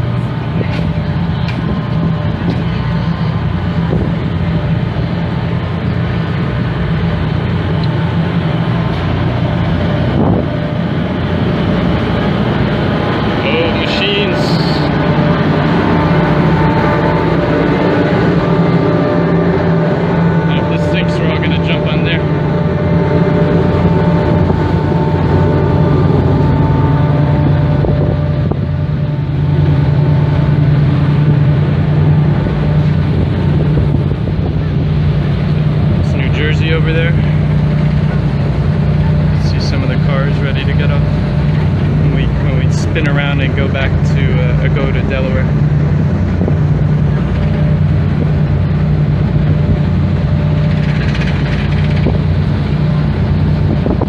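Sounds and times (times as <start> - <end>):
ship machinery droning: 0.0 - 54.0
wind noise on microphone: 0.0 - 54.0.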